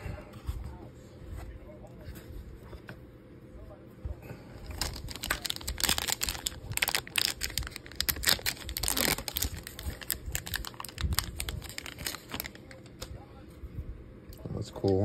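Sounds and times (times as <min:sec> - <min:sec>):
foil pack crinkling: 0:04.6 - 0:13.1
foil pack tearing: 0:04.7 - 0:13.0.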